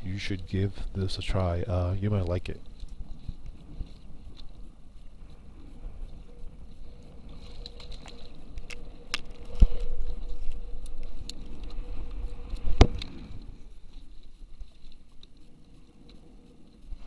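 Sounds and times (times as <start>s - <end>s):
low rumble of wind and water: 0.0s - 17.0s.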